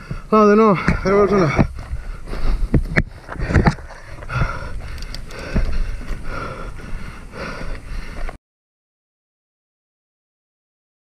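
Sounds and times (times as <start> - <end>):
rider breathing hard: 0.0 - 8.4.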